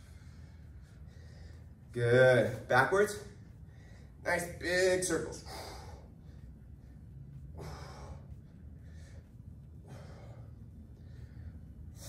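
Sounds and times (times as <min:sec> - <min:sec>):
man breathing: 0:00.0 - 0:02.0, 0:03.4 - 0:04.2, 0:05.3 - 0:12.0
steady low hum: 0:00.0 - 0:12.0.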